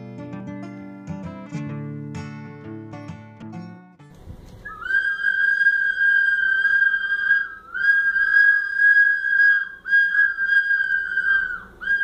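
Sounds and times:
children blowing plastic whistles: 4.6 - 12.0.

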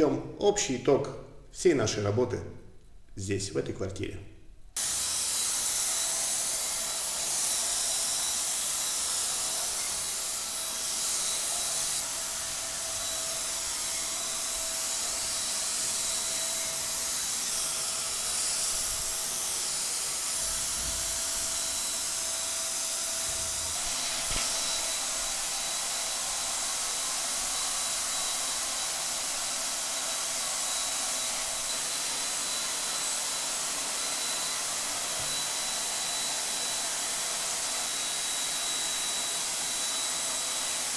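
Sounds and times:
paint sprayer hiss: 4.8 - 35.8
motor whine: 4.8 - 36.7.

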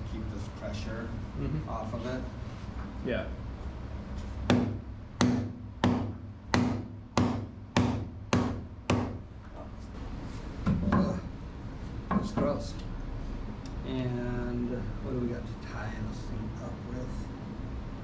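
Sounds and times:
dull knock: 4.5 - 9.2.

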